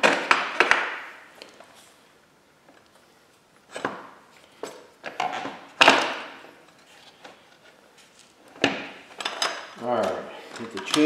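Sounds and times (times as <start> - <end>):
metal parts knocking and clanking: 8.6 - 11.0.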